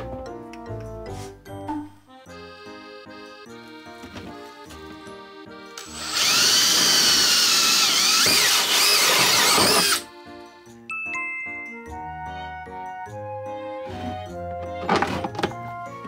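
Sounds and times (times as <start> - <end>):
drill hole saw cutting plastic: 5.8 - 10.1.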